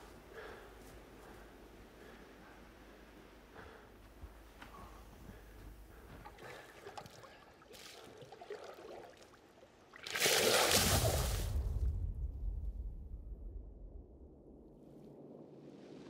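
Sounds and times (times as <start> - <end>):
man plunging into water: 6.2 - 11.9
deep rumble: 11.1 - 15.9.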